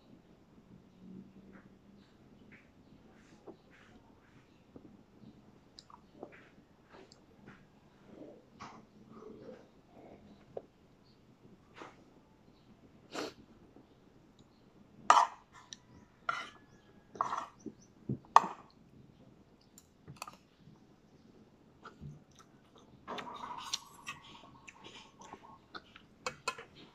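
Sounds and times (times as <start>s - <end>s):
chewing: 21.8s - 26.9s.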